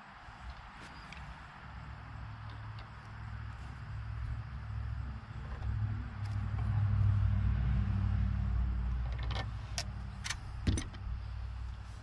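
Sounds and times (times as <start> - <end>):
distant vehicle engine hum: 0.0 - 12.0.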